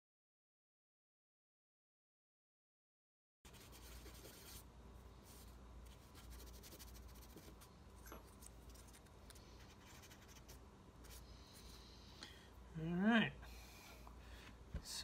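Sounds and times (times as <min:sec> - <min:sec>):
low room hum: 0:03.5 - 0:15.0.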